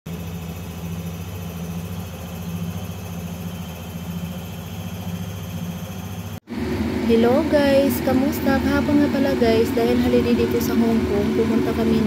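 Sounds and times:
motor humming: 0.1 - 12.0.

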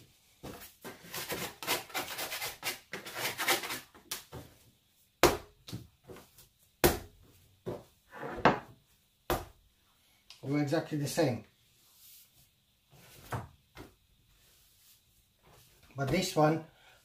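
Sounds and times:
dough thudding on board: 5.2 - 8.7, 9.3 - 9.6.

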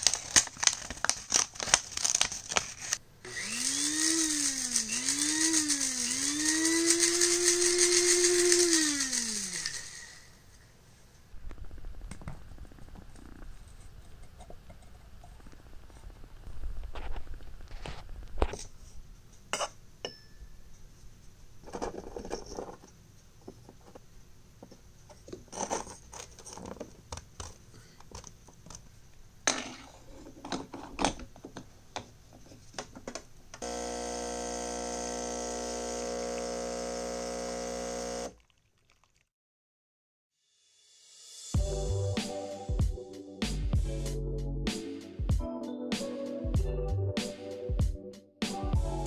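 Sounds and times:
espresso machine pump buzzing: 3.3 - 10.3, 33.6 - 38.4.

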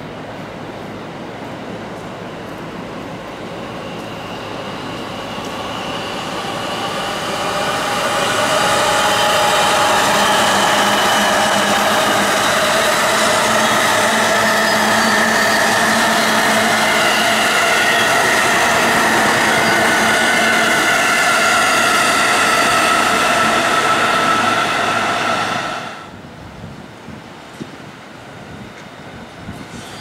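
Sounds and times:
train wheels running on rails: 0.0 - 30.0
train whine: 0.0 - 30.0.

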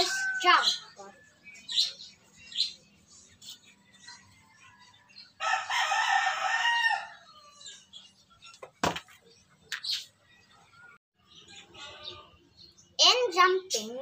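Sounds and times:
rooster crowing: 0.0 - 0.6, 5.4 - 7.6.

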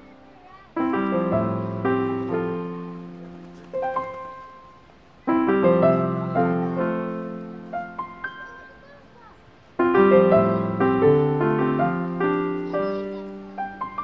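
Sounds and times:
piano chords: 0.0 - 14.0.

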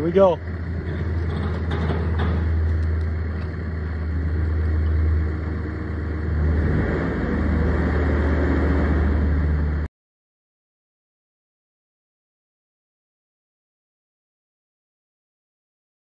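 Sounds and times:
engine humming: 0.0 - 9.9.

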